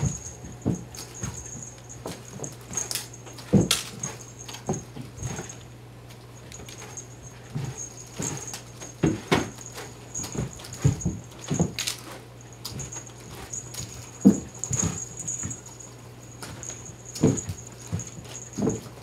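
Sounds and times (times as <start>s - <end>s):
paws pattering: 0.0s - 19.0s.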